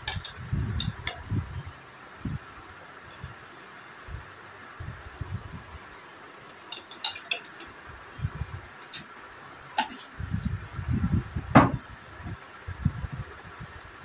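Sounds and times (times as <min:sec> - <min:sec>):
steel dishes and cutlery clinking: 0:06.5 - 0:07.7, 0:08.8 - 0:09.1
dull handling knocks: 0:11.5 - 0:11.8.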